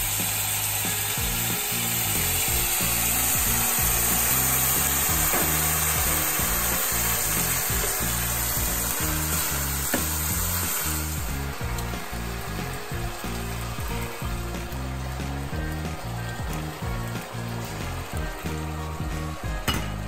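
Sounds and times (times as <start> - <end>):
background music: 0.0 - 20.0
wine sizzling in a hot pan: 0.0 - 20.0.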